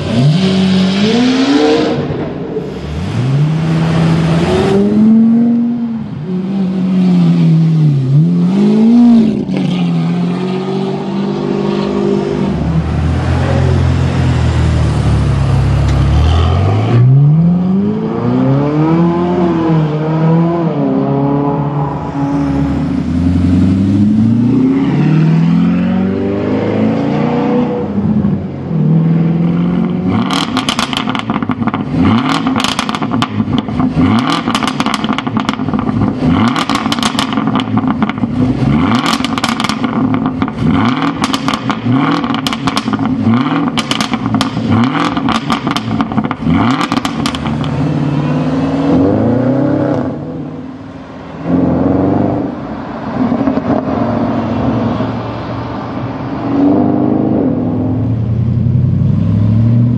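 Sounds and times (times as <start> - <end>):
sports car engine revving: 29.0 - 50.8
exhaust pops and crackles: 30.2 - 47.8.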